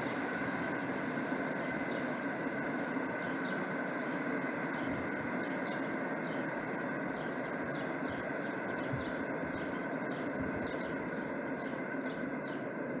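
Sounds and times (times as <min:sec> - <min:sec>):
bird chirping: 0:07.1 - 0:12.7.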